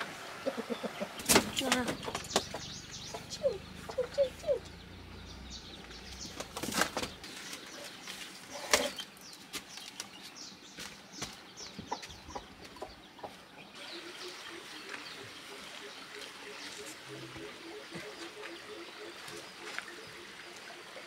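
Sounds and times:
small birds chirping: 0.0 - 21.0
sharp knocks and rustles: 6.1 - 12.9.

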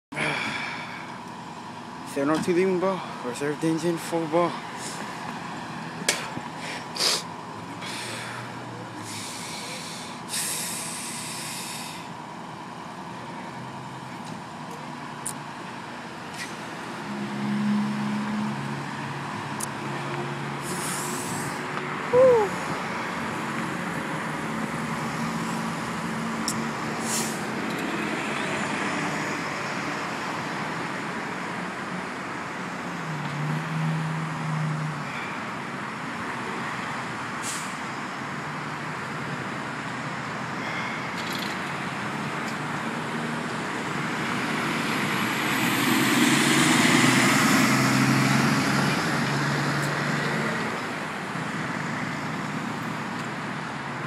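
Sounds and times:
cars passing: 0.1 - 54.0
air brakes hissing: 6.6 - 12.2, 20.6 - 22.5, 27.0 - 27.5, 37.4 - 37.8.

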